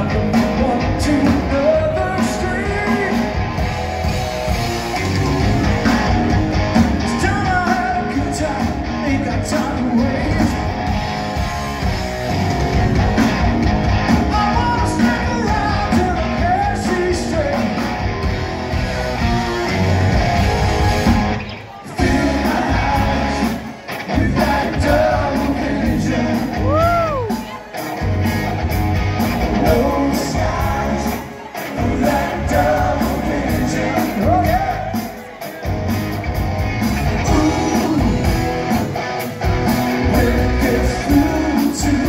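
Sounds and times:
bass: 0:00.0 - 0:42.0
drums: 0:00.0 - 0:42.0
electric guitar: 0:00.0 - 0:42.0
person singing: 0:21.8 - 0:27.6, 0:29.5 - 0:35.2, 0:37.1 - 0:38.5, 0:40.0 - 0:42.0.

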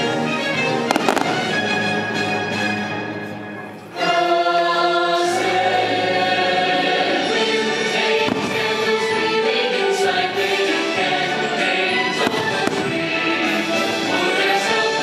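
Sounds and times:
orchestral music: 0:00.0 - 0:15.0
firework bangs: 0:00.9 - 0:02.0, 0:08.2 - 0:09.0, 0:12.2 - 0:13.2
choir singing: 0:03.9 - 0:15.0.

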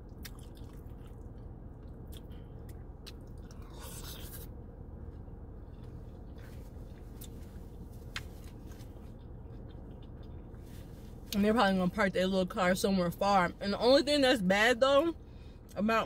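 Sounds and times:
chewing food: 0:00.0 - 0:04.5, 0:05.7 - 0:10.7
low hum: 0:00.0 - 0:16.0.

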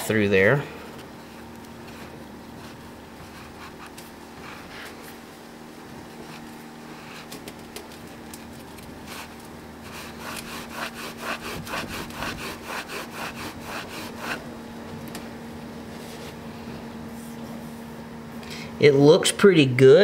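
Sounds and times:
rag scrubbing inside metal bore: 0:09.0 - 0:14.5.

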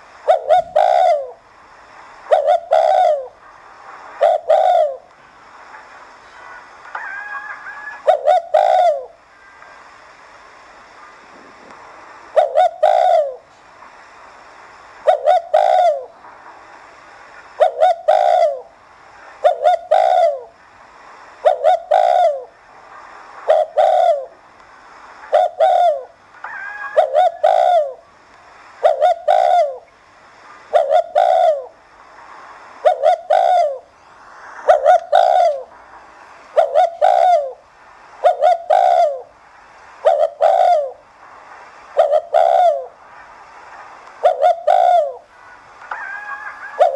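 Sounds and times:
dove cooing: 0:00.0 - 0:01.4, 0:02.3 - 0:03.4, 0:04.2 - 0:05.1, 0:06.9 - 0:09.2, 0:12.3 - 0:13.5, 0:15.0 - 0:16.2, 0:17.6 - 0:18.7, 0:19.4 - 0:20.6, 0:21.4 - 0:22.6, 0:23.4 - 0:24.4, 0:25.3 - 0:28.1, 0:28.8 - 0:29.9, 0:30.6 - 0:31.8, 0:32.8 - 0:33.9, 0:34.7 - 0:35.7, 0:36.5 - 0:37.6, 0:38.2 - 0:39.3, 0:40.0 - 0:41.0, 0:41.9 - 0:43.0, 0:44.2 - 0:46.9.

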